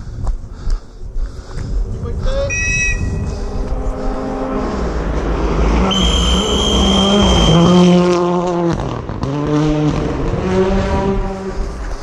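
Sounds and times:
steady high whistle: 0:02.5 - 0:03.3, 0:05.9 - 0:07.8
rally car engine at high revs: 0:03.4 - 0:12.0.

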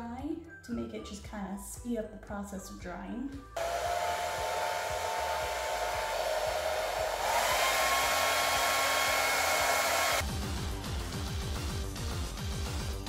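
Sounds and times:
music: 0:00.0 - 0:06.2, 0:10.2 - 0:13.0
hair dryer blowing: 0:03.6 - 0:10.3.

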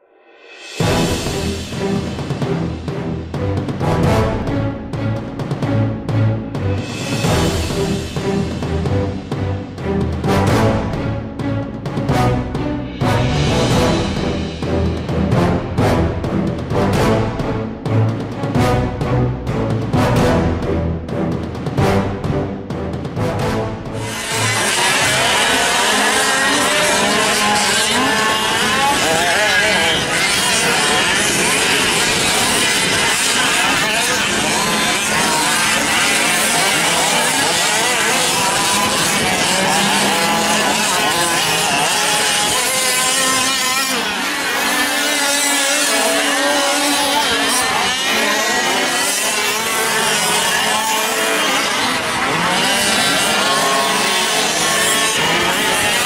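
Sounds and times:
small two-stroke engines revving: 0:24.0 - 0:56.0.

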